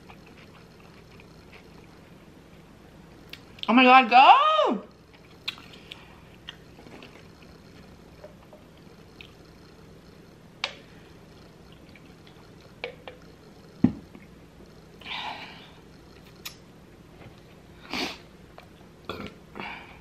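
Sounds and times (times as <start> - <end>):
mouth clicks and smacks: 5.3 - 6.7, 16.2 - 16.6.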